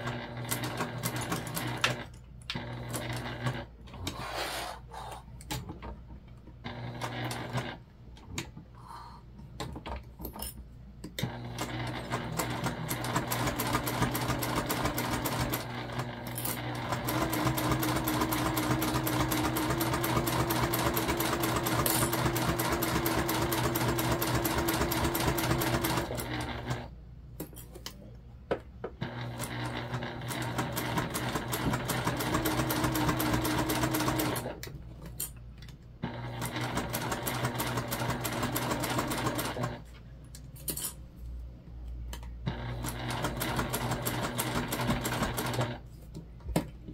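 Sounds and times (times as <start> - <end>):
sewing machine stitching: 0.0 - 4.1, 6.6 - 7.8, 11.2 - 26.9, 29.0 - 34.6, 36.0 - 39.8, 42.5 - 45.9.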